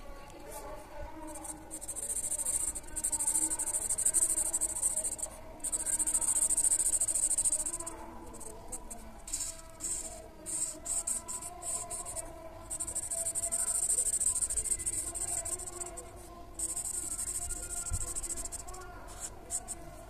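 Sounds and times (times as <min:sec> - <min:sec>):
marker scratching on paper: 0:01.2 - 0:20.0.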